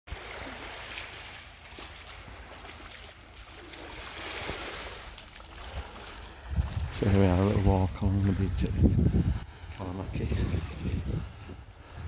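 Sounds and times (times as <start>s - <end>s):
small waves washing onto sand: 0.1s - 12.0s
wind rumble on microphone: 5.6s - 12.0s.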